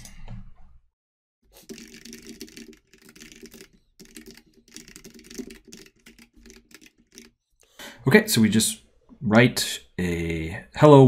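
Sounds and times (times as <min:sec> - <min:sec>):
typing on computer keyboard: 0:01.6 - 0:07.4.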